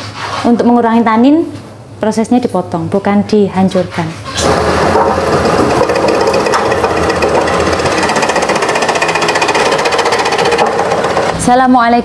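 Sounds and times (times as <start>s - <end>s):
slicing machine blade chopping: 4.4s - 11.4s.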